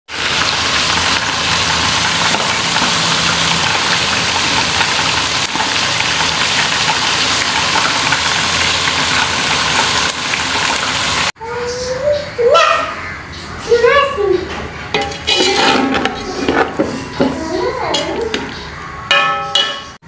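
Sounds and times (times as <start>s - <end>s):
chicken deep-frying in oil: 0.1s - 11.4s.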